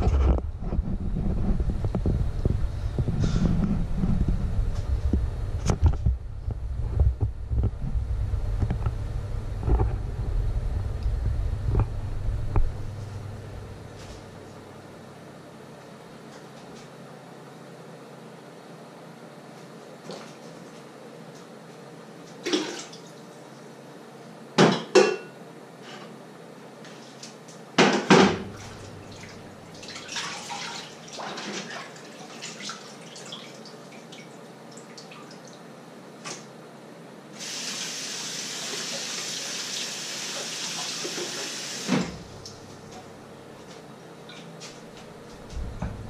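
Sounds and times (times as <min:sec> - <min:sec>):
dishes and pans clattering: 0:24.6 - 0:26.1.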